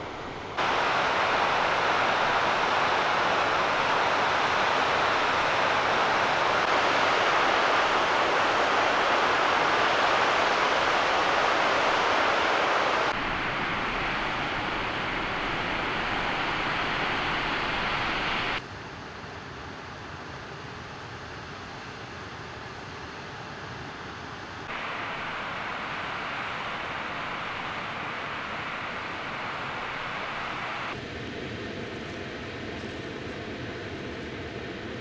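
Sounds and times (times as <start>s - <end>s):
waterfall roaring: 0.0s - 18.6s, 24.7s - 31.1s.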